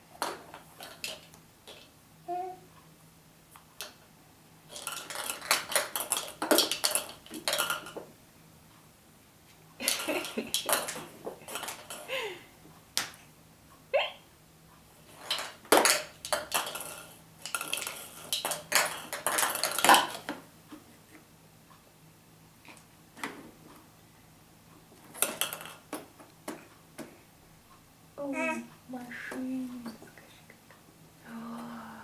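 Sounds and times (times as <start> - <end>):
plastic toys knocking together: 0.2 - 1.9, 4.7 - 8.1, 9.8 - 12.2, 15.1 - 20.4, 25.1 - 27.1.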